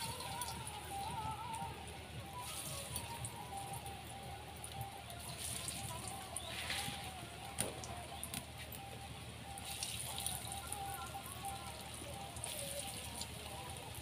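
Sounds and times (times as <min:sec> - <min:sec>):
food frying in hot oil: 0:09.5 - 0:14.0.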